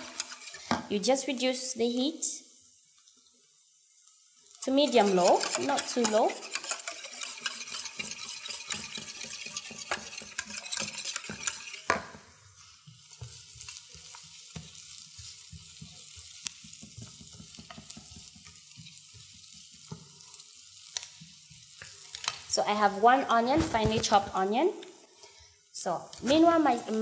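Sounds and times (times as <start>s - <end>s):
utensil scraping a pan: 0.0s - 0.8s, 4.6s - 20.0s
onion sizzling in oil: 0.0s - 27.0s.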